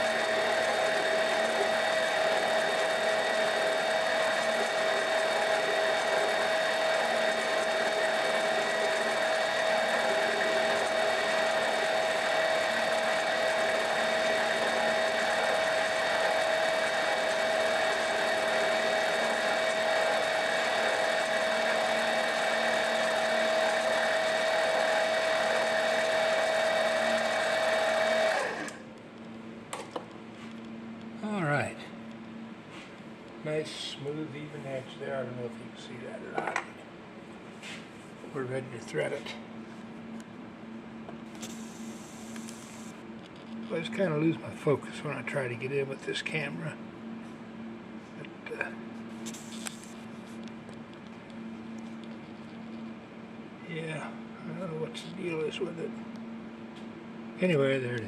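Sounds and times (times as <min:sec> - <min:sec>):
lathe high whine: 0:00.0 - 0:29.0, 0:41.3 - 0:50.5, 0:51.4 - 0:58.0.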